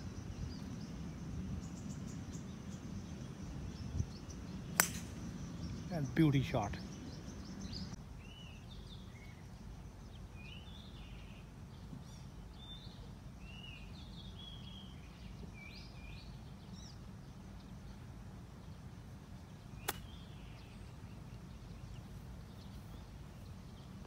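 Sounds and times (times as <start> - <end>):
birds chirping: 0.0 - 24.0
low outdoor background: 0.0 - 24.0
golf club striking ball: 4.7 - 5.2, 19.8 - 20.2.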